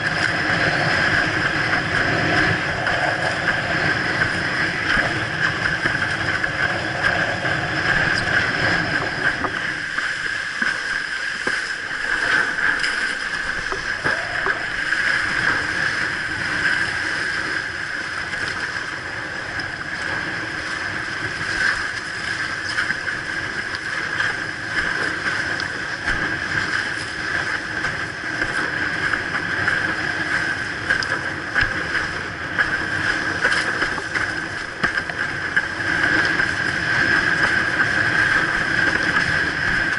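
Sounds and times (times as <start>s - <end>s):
water rushing: 0.0s - 39.9s
wind buffeting camera: 0.0s - 39.9s
chop slapping against hull: 30.9s - 39.9s.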